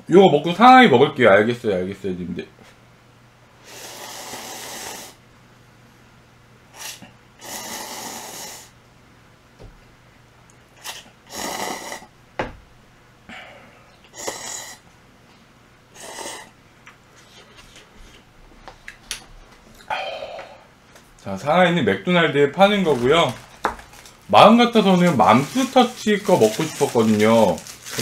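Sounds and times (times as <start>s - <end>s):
person breathing loudly while eating: 3.6s - 5.2s, 6.8s - 8.8s, 13.3s - 14.8s, 19.8s - 20.7s.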